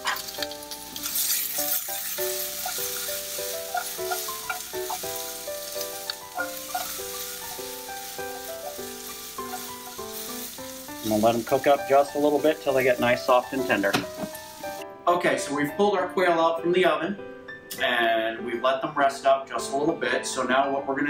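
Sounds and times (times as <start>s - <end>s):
peppers sizzling in a frying pan: 0.0s - 14.8s
tongs tossing food in pan: 0.0s - 14.8s.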